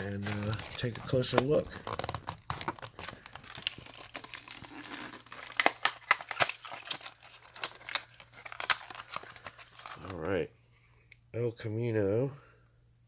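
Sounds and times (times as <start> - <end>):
plastic packaging crinkling: 0.0 - 10.3.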